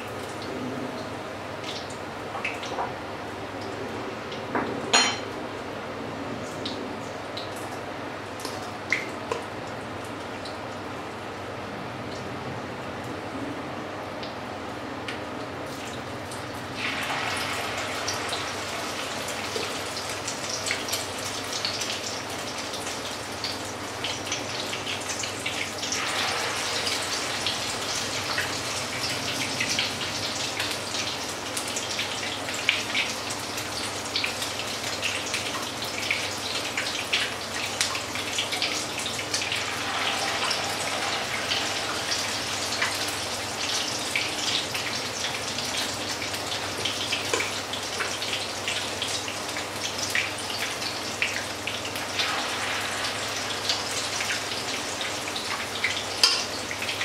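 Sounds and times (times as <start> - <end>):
fritters sizzling in hot fat: 15.6 - 57.0.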